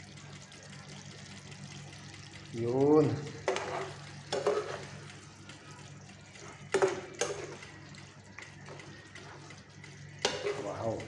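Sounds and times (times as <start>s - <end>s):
spoon stirring bones in sauce: 3.3s - 5.6s, 6.3s - 11.0s
spoon knocking against pan: 6.7s - 7.6s.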